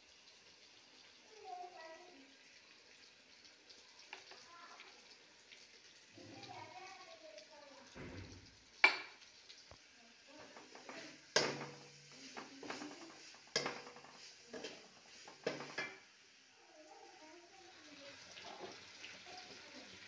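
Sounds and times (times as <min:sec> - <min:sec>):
spatula clanking on pan: 0:08.8 - 0:09.2, 0:10.4 - 0:16.1
metal spatula scraping pan: 0:10.4 - 0:16.0.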